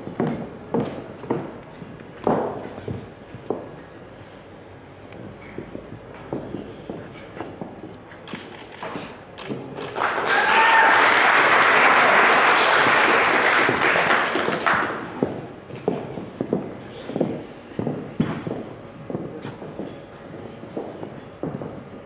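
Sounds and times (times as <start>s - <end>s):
audience applause: 9.8s - 15.2s.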